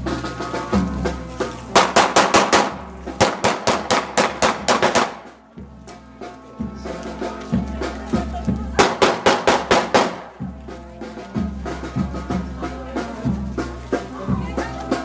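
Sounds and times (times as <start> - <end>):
band music with low drum beat: 0.0 - 15.0
sharp evenly spaced strikes: 1.7 - 5.5.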